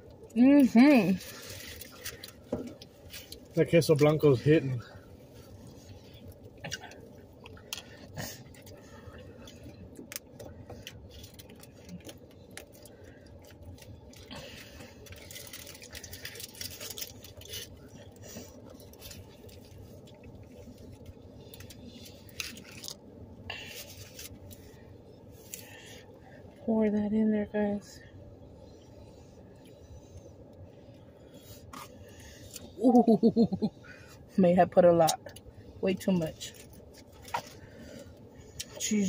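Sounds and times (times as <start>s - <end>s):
low steady hum: 0.0s - 39.0s
aluminium foil crinkling: 1.0s - 4.4s, 9.4s - 24.8s.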